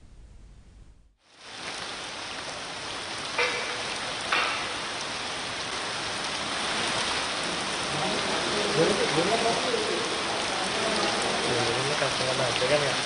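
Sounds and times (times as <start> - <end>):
hail and rain pelting down: 1.2 - 13.0
sharp knocks: 3.4 - 4.8.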